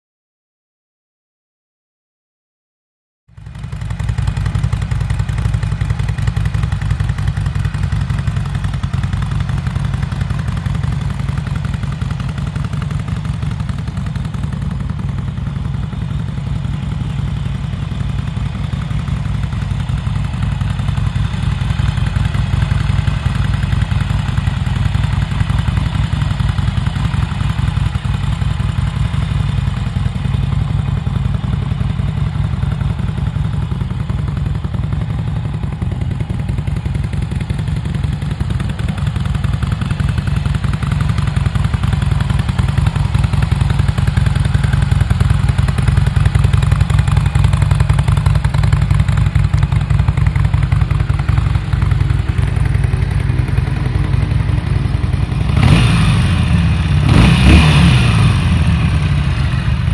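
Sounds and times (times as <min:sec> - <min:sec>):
motorcycle engine idling: 0:03.3 - 0:59.9.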